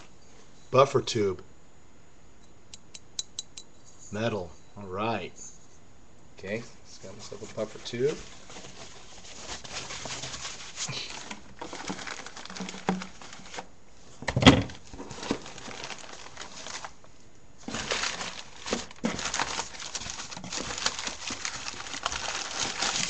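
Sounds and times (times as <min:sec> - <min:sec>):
packing material rustling: 0:07.0 - 0:13.7, 0:14.7 - 0:17.0, 0:17.6 - 0:23.0.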